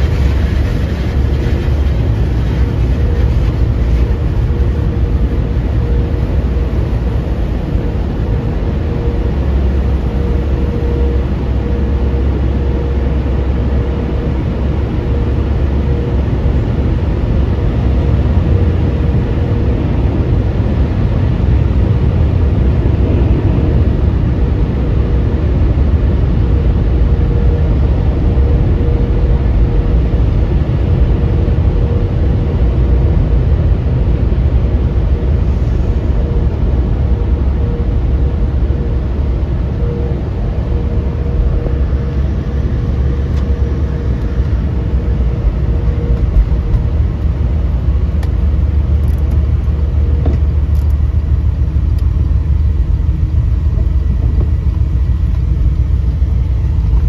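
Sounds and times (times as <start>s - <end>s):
car wash machinery rumble: 0.0s - 57.0s.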